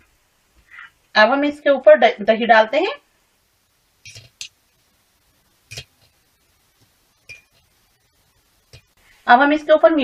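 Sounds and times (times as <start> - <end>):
steel spoon clinking on bowl: 4.0 - 4.5, 5.7 - 5.9, 7.2 - 7.6.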